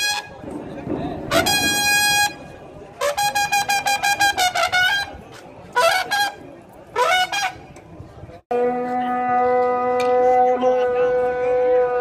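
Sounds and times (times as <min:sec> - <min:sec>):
trumpet playing short notes: 0:01.3 - 0:02.4, 0:03.0 - 0:05.2.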